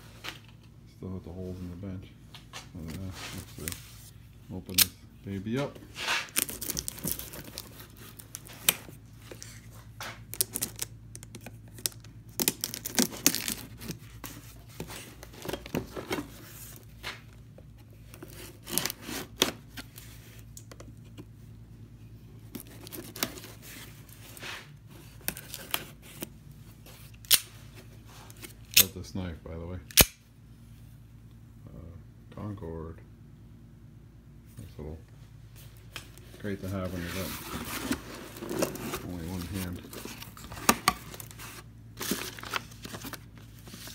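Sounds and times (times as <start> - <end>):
tape tearing: 6.0 - 16.2, 18.1 - 20.7, 27.0 - 27.6
cardboard scraping: 36.3 - 43.9.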